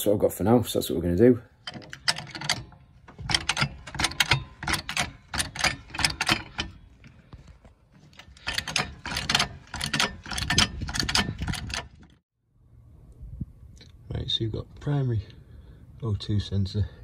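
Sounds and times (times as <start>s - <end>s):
trolley jack metallic clacking: 1.6s - 7.2s, 8.0s - 12.2s.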